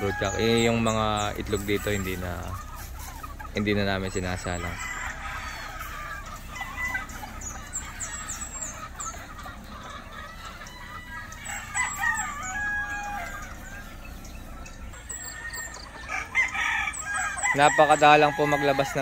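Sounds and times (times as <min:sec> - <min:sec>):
hens clucking: 0:00.0 - 0:19.0
roosters crowing: 0:00.0 - 0:19.0.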